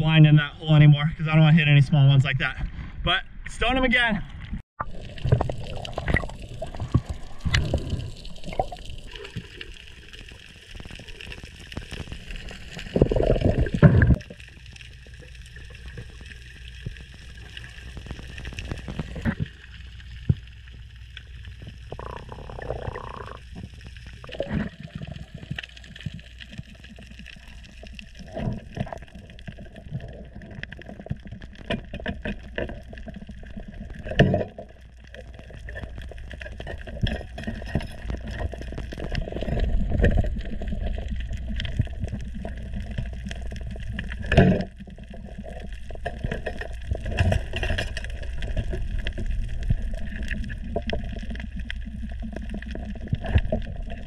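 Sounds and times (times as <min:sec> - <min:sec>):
small underwater clicks: 0:05.1 - 0:54.0
muffled underwater gurgling: 0:21.6 - 0:25.6.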